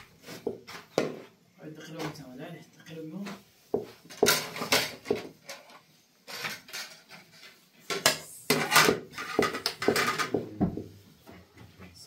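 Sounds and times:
hard objects clattering: 7.9s - 10.9s.

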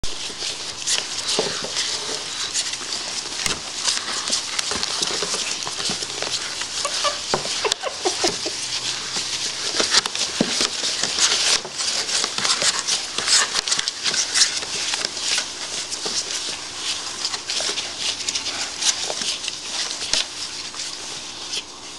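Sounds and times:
puppies scratching and scuffling: 0.0s - 21.9s
puppy squeaks and grunts: 6.8s - 8.8s.

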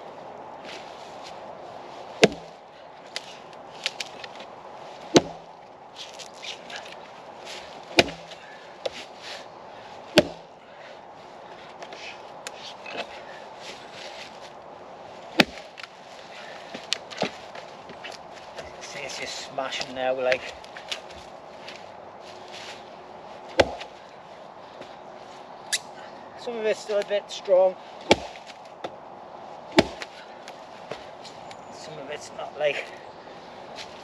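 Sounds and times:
hatchet chopping rotten log: 2.2s - 2.5s, 3.1s - 4.3s, 5.1s - 7.0s, 7.9s - 9.0s, 10.1s - 10.4s, 15.4s - 15.9s, 23.5s - 23.9s, 28.0s - 29.0s, 29.7s - 30.6s.

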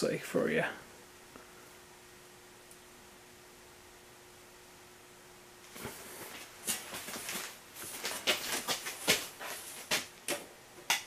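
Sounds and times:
footsteps on concrete: 5.8s - 10.2s.

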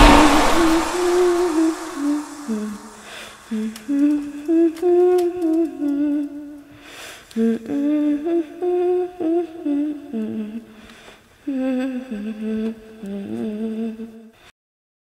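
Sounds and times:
person humming a slow tune: 3.5s - 6.7s, 7.3s - 10.8s, 11.4s - 14.5s.

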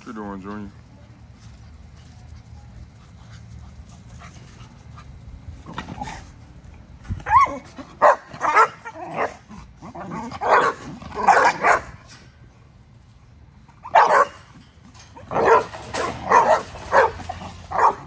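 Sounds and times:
puppies barking and yipping: 7.2s - 9.5s, 13.8s - 18.0s.

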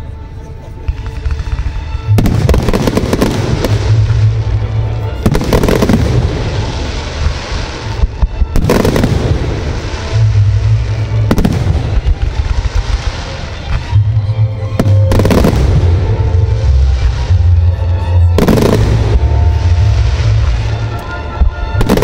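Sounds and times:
music: 0.0s - 22.0s
loud firework bangs: 1.1s - 13.8s, 18.4s - 20.8s.

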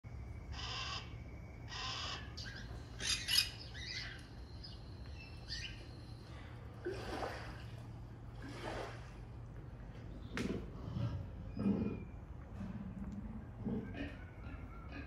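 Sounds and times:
steady low hum: 0.0s - 15.0s
birds chirping and calling: 0.4s - 6.5s.

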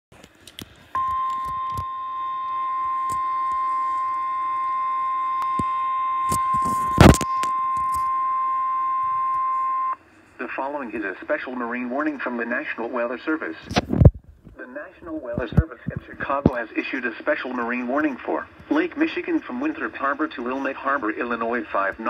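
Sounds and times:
weather radio alarm beep: 1.0s - 10.0s.

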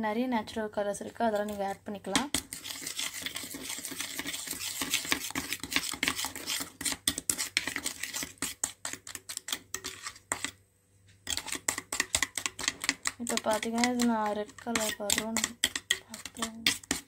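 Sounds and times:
stirrer scraping a steel bowl: 1.1s - 10.6s, 11.2s - 17.0s.

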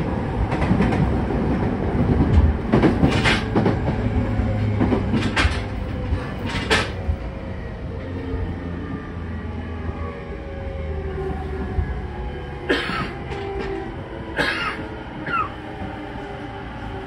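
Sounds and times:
train wheels rumbling on rail: 0.0s - 17.0s
wheels clacking over rail joints: 0.5s - 7.2s.

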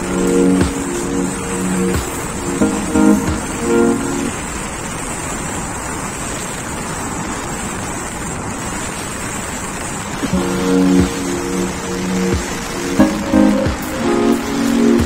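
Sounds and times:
background music: 0.0s - 4.3s, 10.3s - 15.0s
rushing wind and road noise: 0.0s - 15.0s.

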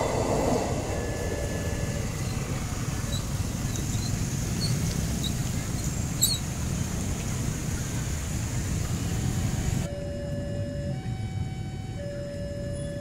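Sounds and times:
two-tone crossing alarm: 0.0s - 2.5s, 9.0s - 13.0s
motorcycles rumbling: 0.0s - 9.9s.

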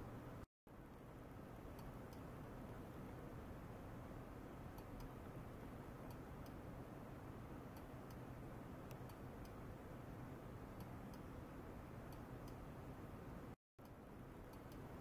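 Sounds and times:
sharp high ticks: 13.8s - 14.9s.

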